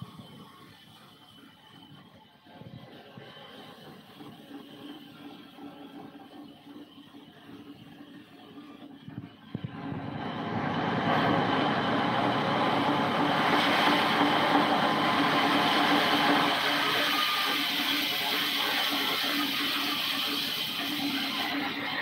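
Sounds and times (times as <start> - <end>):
band saw cutting wood: 9.7 - 22.0.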